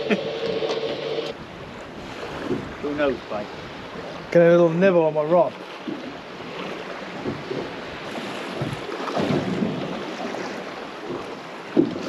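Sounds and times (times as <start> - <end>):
water slapping against boat hull: 0.4 - 3.0, 5.4 - 12.0
wind buffeting microphone: 1.3 - 4.8, 5.6 - 12.0.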